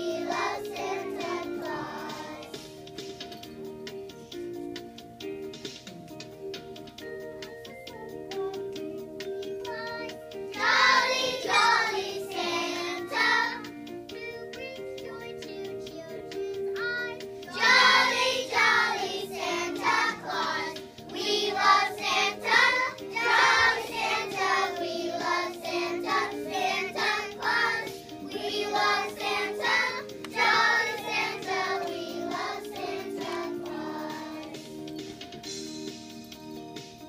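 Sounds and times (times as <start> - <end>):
young children singing: 0.0 - 2.7, 7.9 - 34.8
backing music: 0.0 - 37.0.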